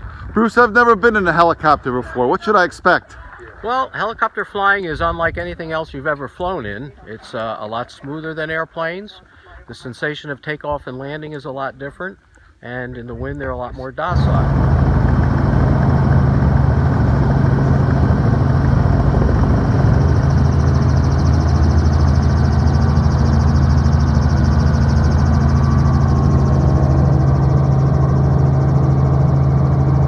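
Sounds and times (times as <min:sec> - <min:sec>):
helicopter engine and rotor: 0:14.1 - 0:30.0.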